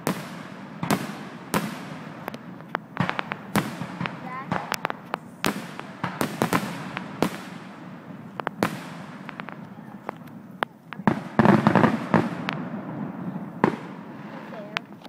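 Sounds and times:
fireworks bursting with bangs: 0.0 - 15.0.

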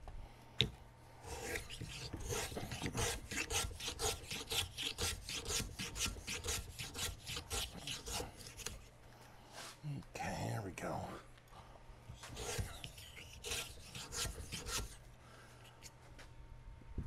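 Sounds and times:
hand file scraping wood: 1.2 - 8.9, 12.2 - 15.0.

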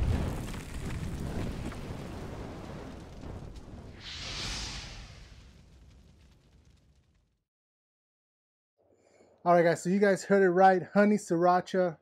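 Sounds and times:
whoosh and burst effect: 3.9 - 5.9.

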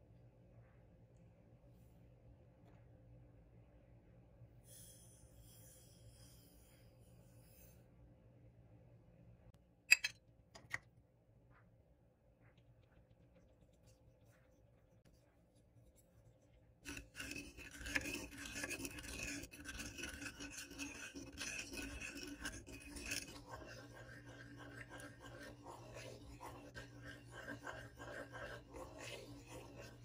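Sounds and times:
spoon scraping sugar in pan: 15.0 - 30.0.

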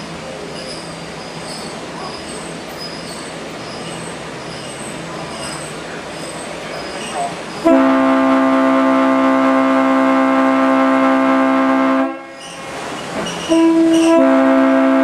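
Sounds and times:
train horn blasts: 7.6 - 12.4, 13.5 - 15.0.

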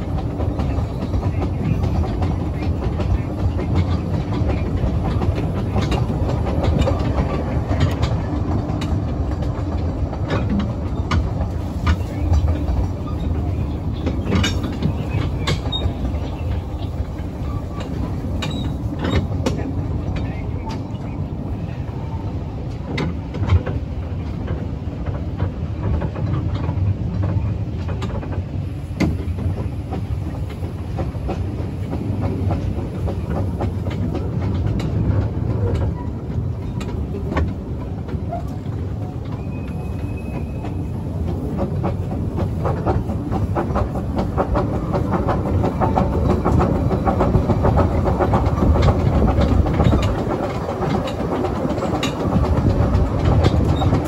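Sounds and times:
wheels clicking over rail: 0.0 - 21.1, 22.7 - 54.0
train rumbling on track: 0.0 - 54.0.

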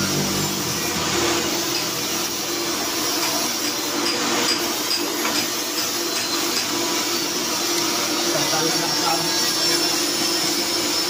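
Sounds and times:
electric machine motor whirring: 0.0 - 4.3, 5.6 - 11.0.

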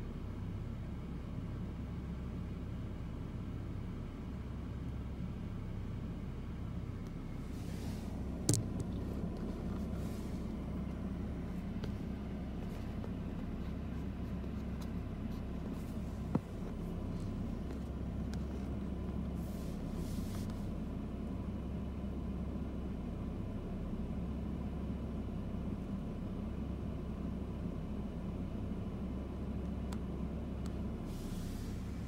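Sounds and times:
faint hum: 0.0 - 32.0
low background rumble: 0.0 - 32.0.

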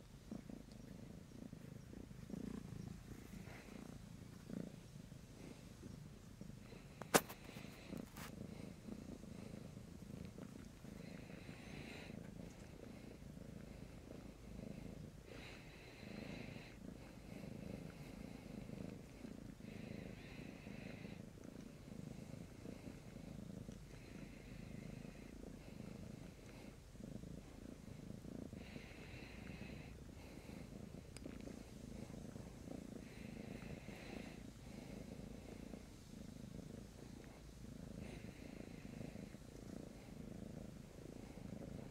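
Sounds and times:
cat purring: 0.0 - 41.9.

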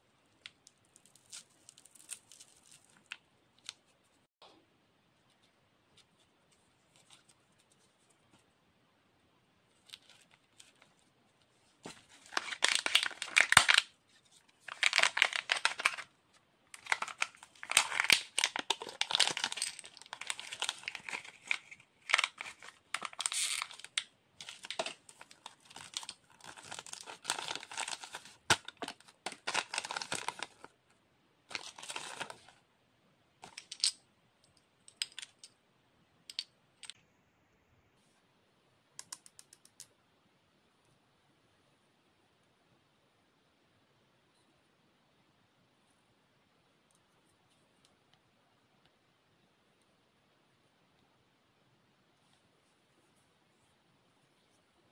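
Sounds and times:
foil wrapper crinkling: 12.2 - 13.9, 14.6 - 16.1, 16.8 - 30.7.

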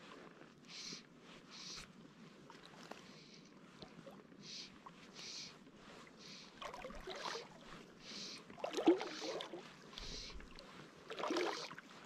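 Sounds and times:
soft water hiss: 0.0 - 12.0
water splashing against float tube: 6.6 - 7.7, 8.5 - 12.0.

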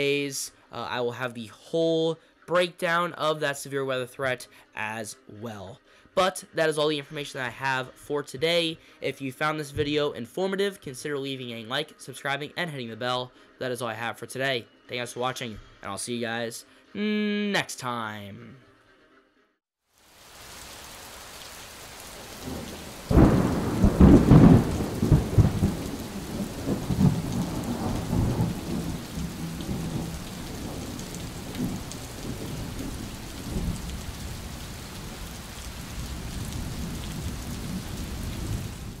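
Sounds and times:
steady rain: 19.9 - 39.0
thunder clap and rumble: 22.4 - 39.0.

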